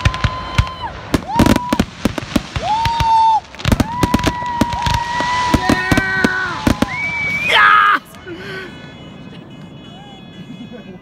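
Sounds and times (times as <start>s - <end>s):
fireworks bangs and crackles: 0.0s - 11.0s
long steady high tones: 5.4s - 11.0s.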